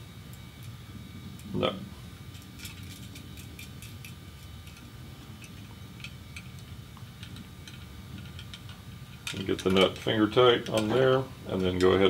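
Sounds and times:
low room hum: 0.0 - 12.0
small metal parts clicking: 2.3 - 11.0.

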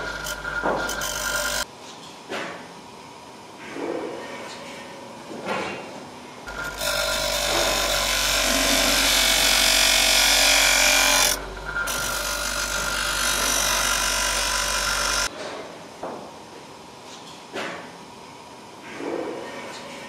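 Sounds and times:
electric power tool running: 6.5 - 15.3.

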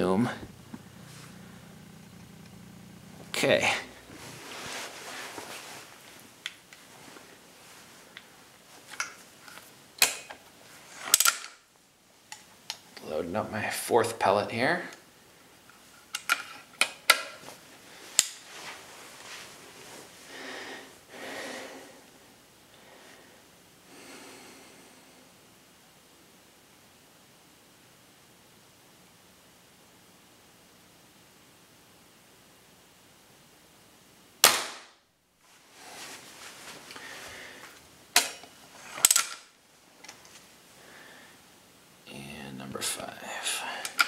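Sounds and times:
handling noise: 0.0 - 11.7
person breathing: 20.2 - 22.1, 22.7 - 25.3, 36.9 - 37.8, 40.8 - 41.6, 43.2 - 44.0
air rifle shot: 34.4 - 35.0.

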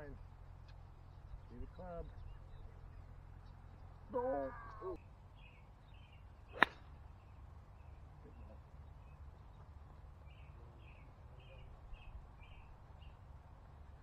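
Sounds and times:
golf club striking ball: 6.5 - 7.0.

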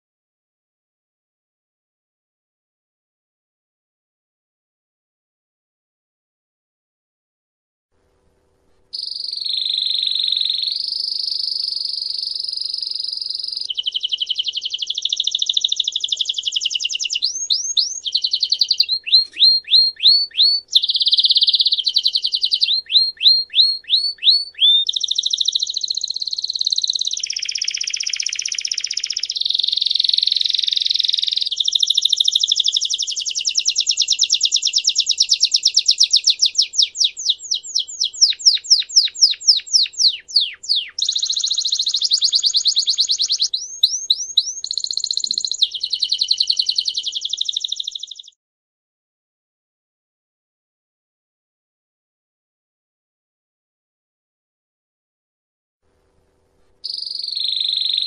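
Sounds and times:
canary singing trills: 9.0 - 48.4, 56.8 - 58.0.

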